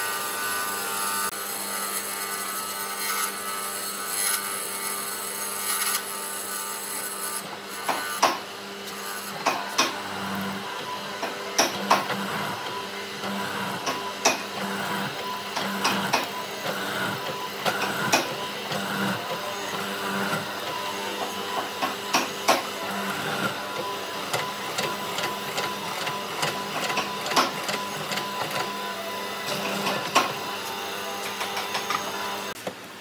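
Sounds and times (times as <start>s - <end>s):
mortiser motor hum: 9.3s - 32.6s.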